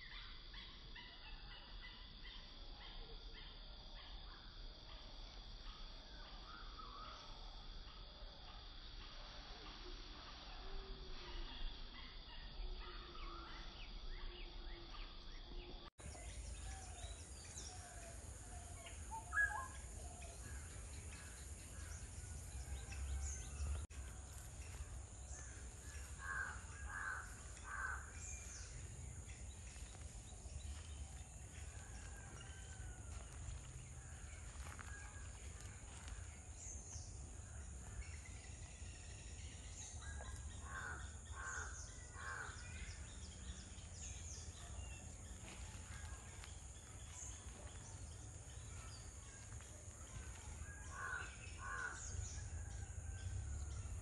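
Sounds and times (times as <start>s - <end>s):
birds calling: 24.6s - 31.0s
crow-like caws: 25.9s - 28.1s, 50.9s - 52.0s.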